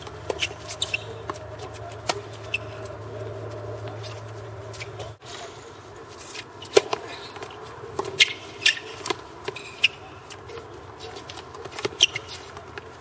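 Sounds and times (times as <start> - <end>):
tennis ball struck by rackets: 0.0 - 2.7
tennis ball bouncing on court: 0.0 - 5.0.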